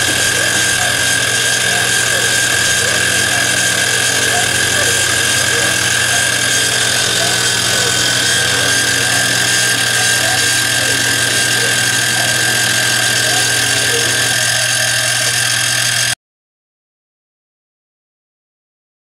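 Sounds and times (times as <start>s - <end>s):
milling machine whine and hum: 0.0s - 16.2s.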